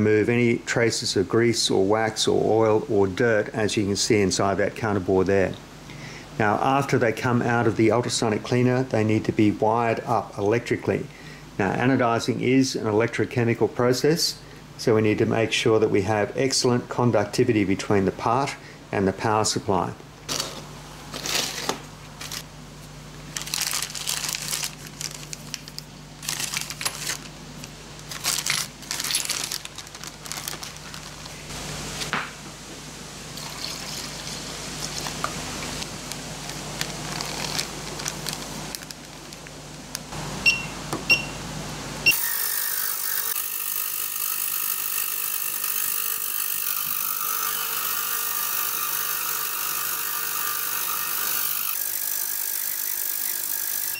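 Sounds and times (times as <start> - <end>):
ultrasonic cleaner buzzing hiss: 31.3 - 38.8, 39.7 - 53.9
short beeps: 40.4 - 41.4.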